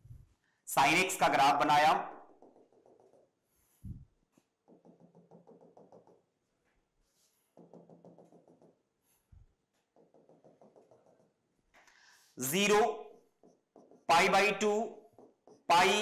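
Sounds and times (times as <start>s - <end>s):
marker tapping on whiteboard: 2.2s - 3.6s, 4.3s - 6.4s, 7.4s - 11.8s, 13.2s - 16.0s
dull knock: 4.6s - 6.2s, 7.6s - 8.8s, 9.9s - 11.3s.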